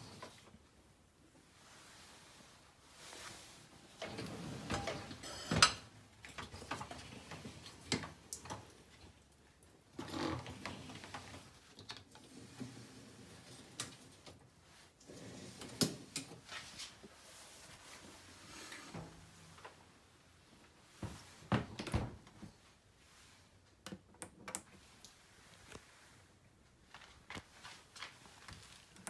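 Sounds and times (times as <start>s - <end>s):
dishwasher racks rattling: 4.0s - 5.9s.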